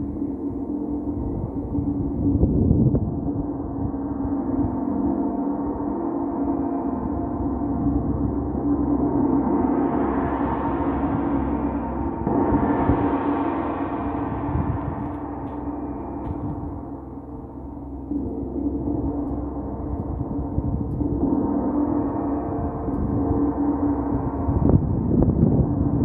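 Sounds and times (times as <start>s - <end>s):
gong struck with mallet: 6.7s - 26.0s.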